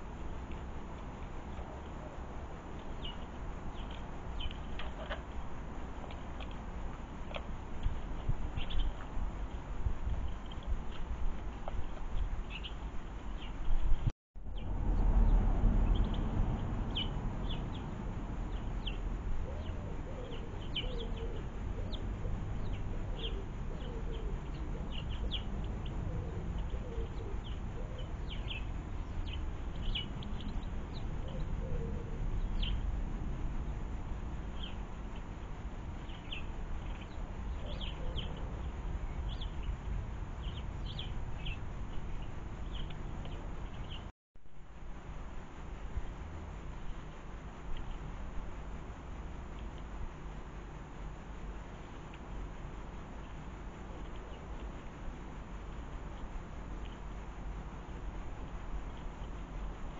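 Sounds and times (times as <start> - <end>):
small birds chirping: 0.0 - 33.0, 33.6 - 44.1, 51.7 - 59.9
steady low rumble: 0.0 - 59.9
pigeon cooing: 19.4 - 28.7, 31.2 - 32.3, 37.5 - 38.7.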